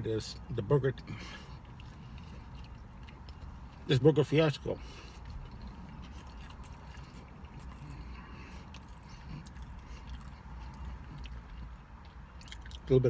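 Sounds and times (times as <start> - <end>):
person chewing: 1.0 - 13.0.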